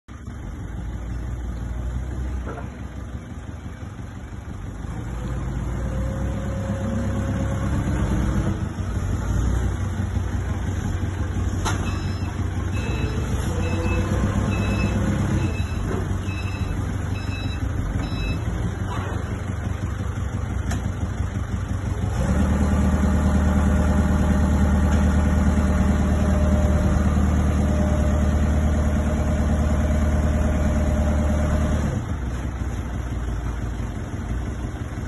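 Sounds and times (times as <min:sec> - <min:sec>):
forklift engine revving: 0:04.6 - 0:34.1
reversing alarm beeping: 0:11.8 - 0:18.6.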